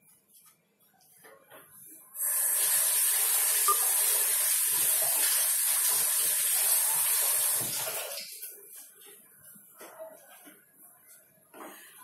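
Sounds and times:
tap water running: 2.2s - 8.5s.

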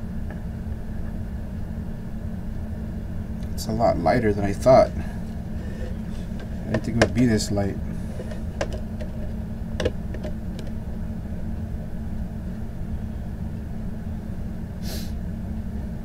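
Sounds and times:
steady low hum: 0.0s - 16.0s
disc case rustling: 4.6s - 10.8s.

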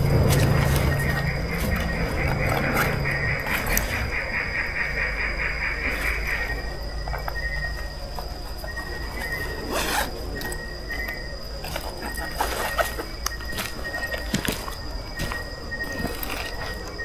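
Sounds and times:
insects trilling: 0.0s - 17.0s.

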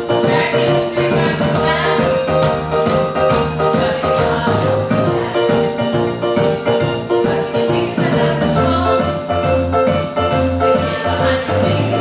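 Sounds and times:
upbeat song with singing: 0.0s - 12.0s.

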